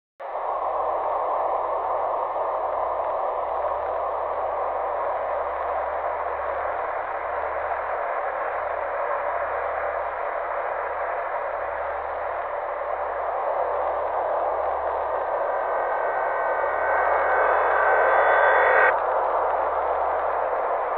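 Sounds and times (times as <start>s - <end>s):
steady static hiss: 0.3s - 20.9s
low hum: 9.6s - 20.9s.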